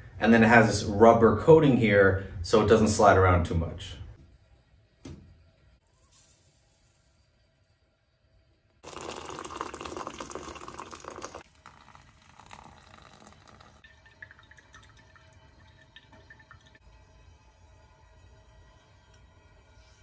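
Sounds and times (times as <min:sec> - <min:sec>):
coffee trickling and dripping: 0:08.8 - 0:19.6
hot water pouring from kettle: 0:08.8 - 0:19.7.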